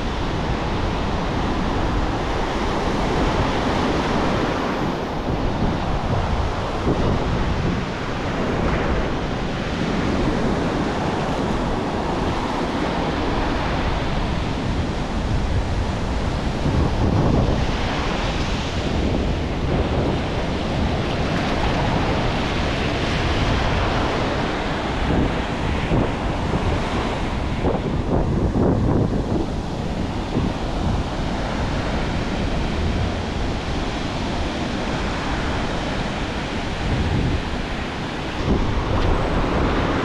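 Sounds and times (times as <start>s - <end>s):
ocean surf breaking: 0.0s - 40.0s
wind buffeting microphone: 0.0s - 40.0s.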